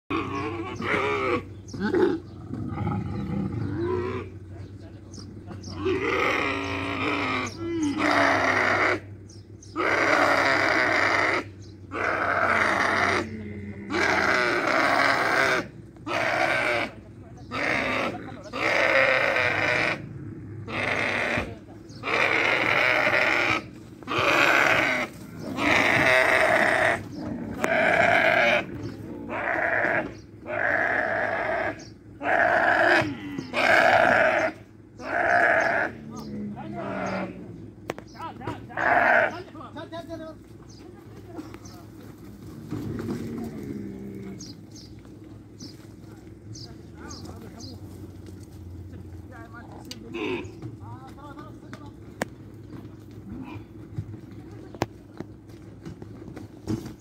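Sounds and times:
camels bellowing: 0.1 - 57.0.

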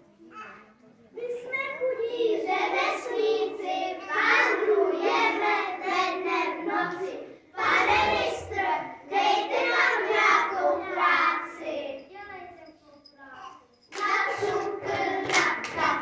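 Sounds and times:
children singing together: 1.8 - 12.1, 13.9 - 16.0.

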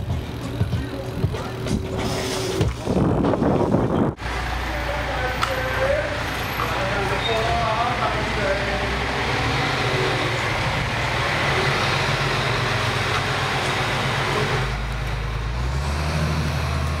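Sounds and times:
motor vehicle engine running: 0.0 - 17.0.

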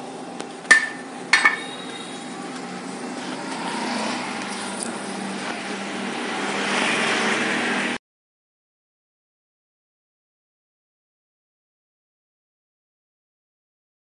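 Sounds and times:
sharp clink: 0.7 - 2.2
steady rushing noise: 3.3 - 8.0.

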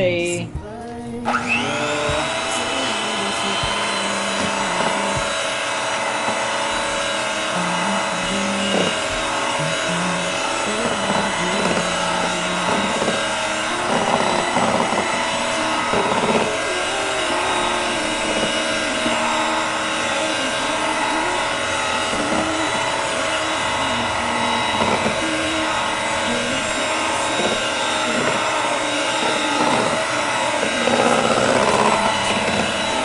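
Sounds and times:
electric hand mixer whipping cream: 0.0 - 33.0.

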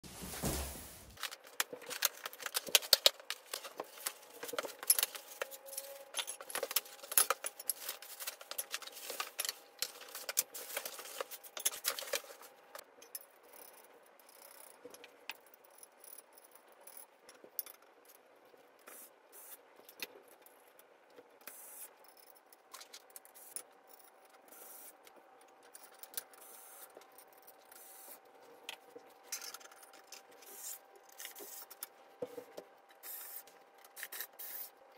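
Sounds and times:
metal parts clinking and rattling: 1.2 - 18.2, 29.2 - 31.8, 33.8 - 34.6.

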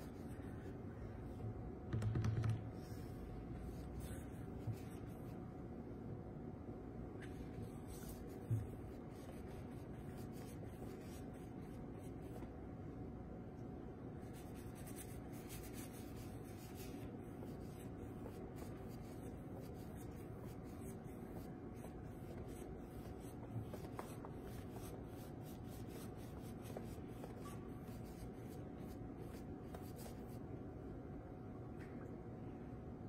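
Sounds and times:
steady background hum: 0.0 - 33.0.

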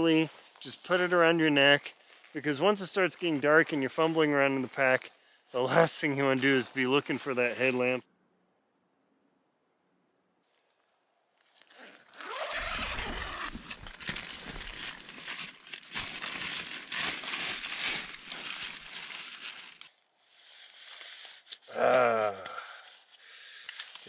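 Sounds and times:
nylon and gear rustling: 10.4 - 24.0.

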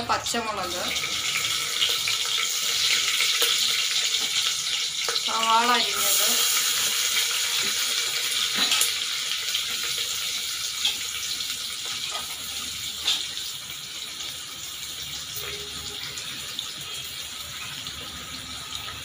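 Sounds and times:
onion sizzling in hot oil: 0.0 - 19.0
oil crackling: 0.6 - 14.6.

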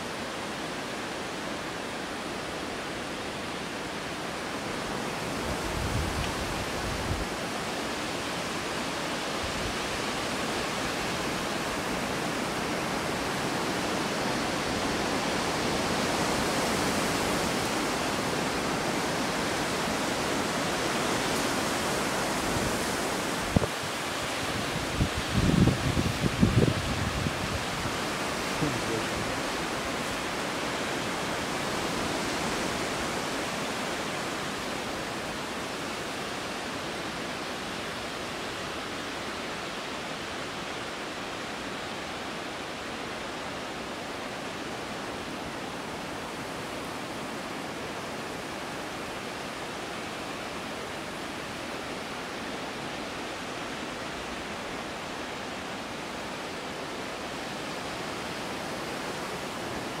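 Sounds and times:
strong wind blowing: 4.7 - 7.4, 11.0 - 33.6.

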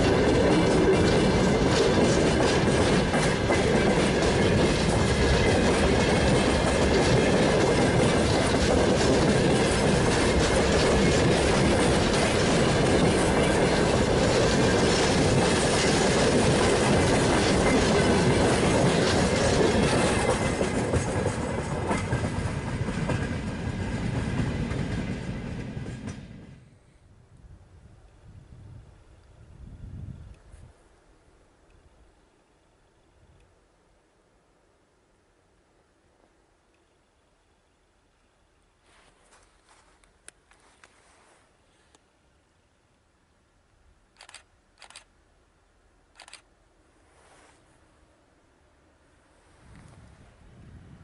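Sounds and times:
freight train wheels clattering: 0.0 - 26.7.

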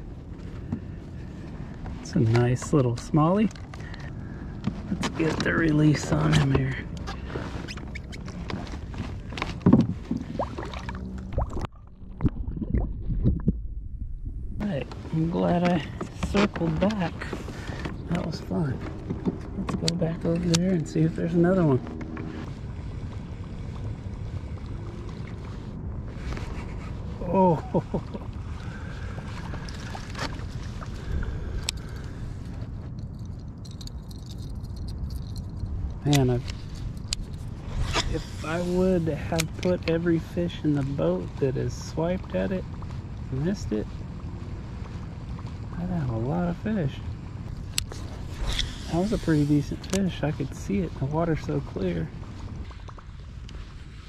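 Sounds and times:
water splashing and sloshing: 0.0 - 54.0.

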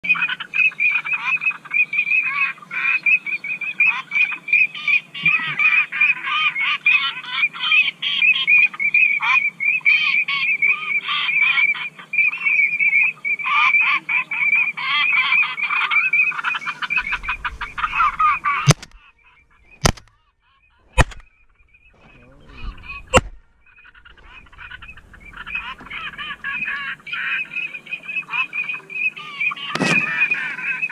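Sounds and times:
waterfowl calling: 0.0 - 30.9
sharp clicks: 18.6 - 19.0, 19.7 - 20.2, 20.9 - 21.5, 23.1 - 23.4.

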